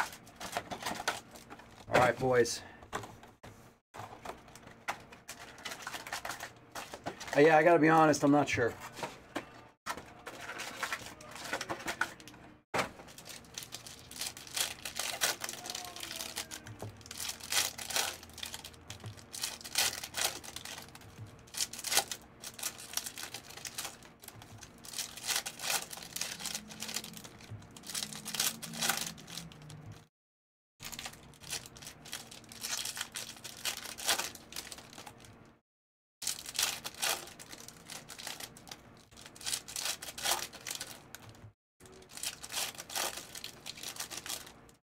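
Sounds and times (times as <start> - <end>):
foil wrappers crinkling and tearing: 0.0 - 2.4, 4.3 - 8.3, 9.9 - 30.0, 30.8 - 35.4, 36.2 - 44.8.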